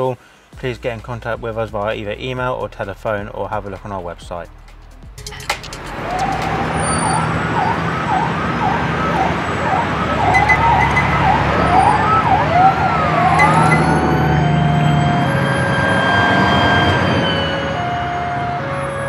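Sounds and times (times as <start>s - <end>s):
gliding siren-like tones: 5.8s - 19.0s.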